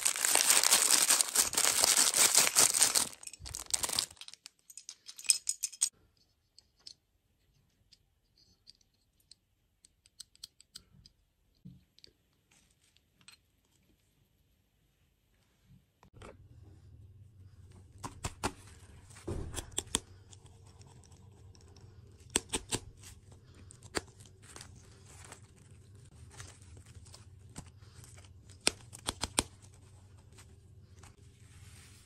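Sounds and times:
low steady hum: 16.2s - 32.0s.

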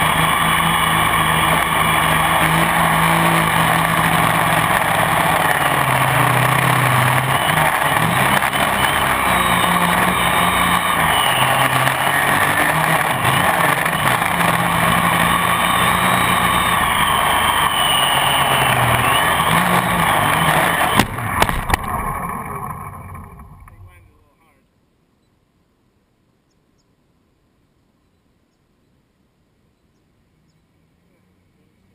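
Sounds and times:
drone motors and propellers whirring: 0.0s - 23.9s.

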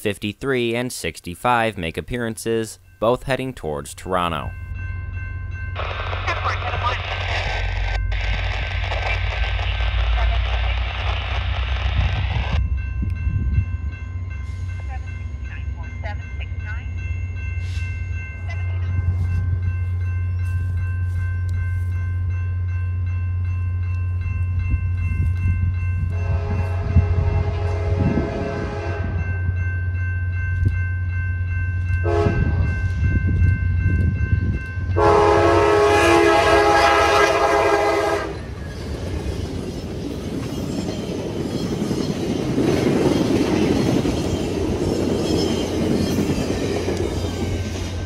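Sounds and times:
train rumbling and rattling past: 4.4s - 48.0s
train air horn blasts: 26.1s - 29.2s, 32.0s - 32.6s, 35.0s - 38.4s.

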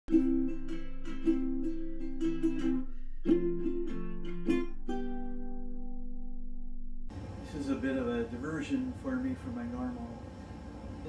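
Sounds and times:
strummed ukulele: 0.1s - 7.1s.

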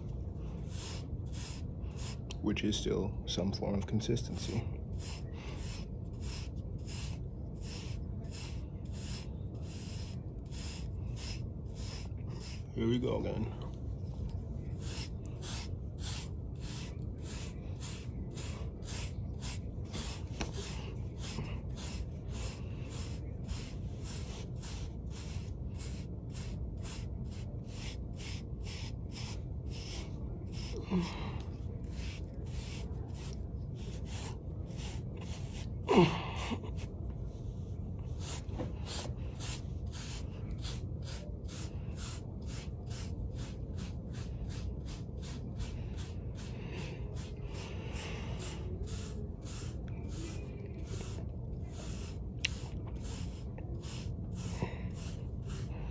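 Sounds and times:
hairbrush stroking hair: 14.7s - 35.8s, 38.1s - 55.9s.

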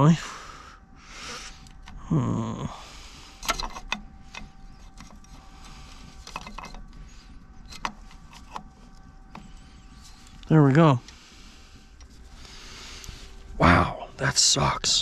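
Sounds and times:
small metal parts clicking: 3.4s - 11.2s.

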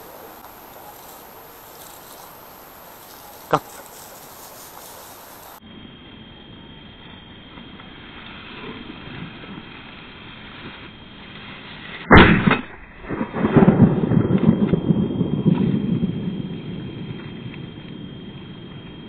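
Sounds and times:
shotgun shot: 12.1s - 13.9s.

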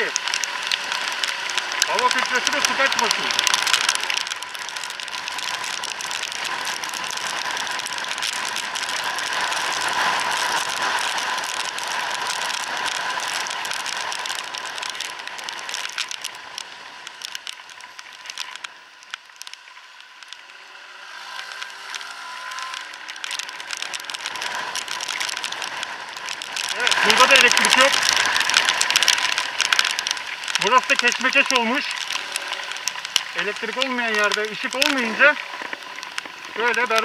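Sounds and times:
raindrops ticking: 0.0s - 37.0s
wind noise in helmet: 5.2s - 15.7s.

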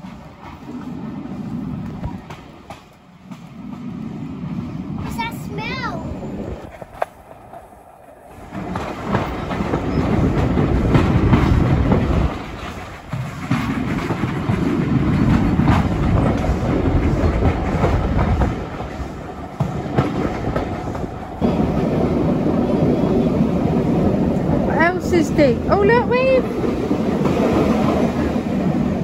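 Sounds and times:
train carriages rumbling: 0.0s - 29.0s
wheels clicking over rail joints: 6.6s - 29.0s.

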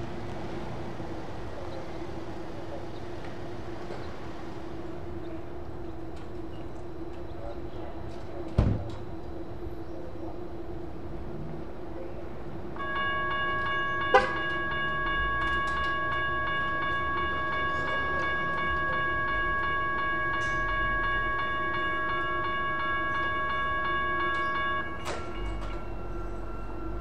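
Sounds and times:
railroad crossing bell ringing: 0.0s - 11.0s, 12.5s - 27.0s
bell of different pitch: 12.8s - 27.0s.

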